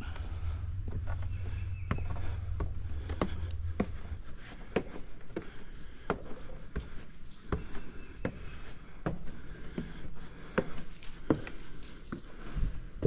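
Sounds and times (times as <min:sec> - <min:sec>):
low rumble: 0:00.0 - 0:04.4
footsteps tapping: 0:00.0 - 0:12.8.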